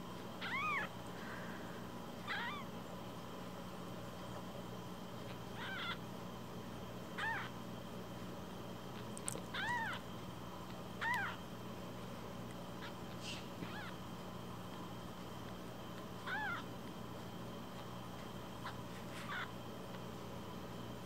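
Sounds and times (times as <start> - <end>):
kitten mewing: 0.4 - 0.9, 2.2 - 2.7, 5.6 - 6.0, 7.2 - 7.5, 9.2 - 10.0, 11.0 - 11.4, 12.8 - 14.0, 16.2 - 16.7, 18.6 - 19.5.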